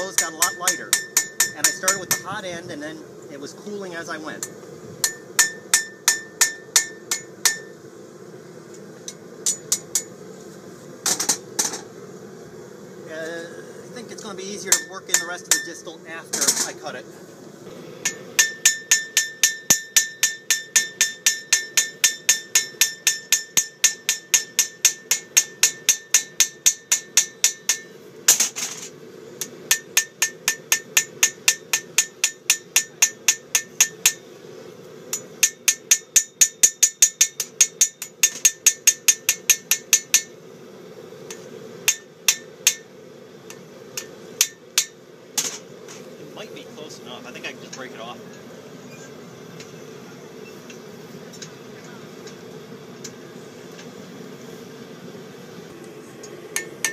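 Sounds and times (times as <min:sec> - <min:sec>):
hammer blows on anvil ringing: 0:00.0 - 0:02.3, 0:04.4 - 0:07.7, 0:14.7 - 0:15.8, 0:18.1 - 0:27.9.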